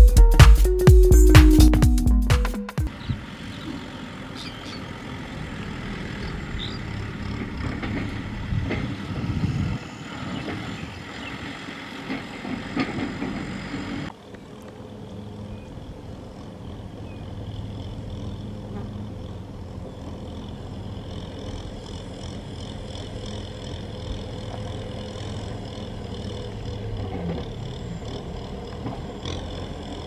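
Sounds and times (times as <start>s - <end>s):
tractor diesel engine running: 0.0s - 30.0s
trailer knocks: 7.0s - 9.5s.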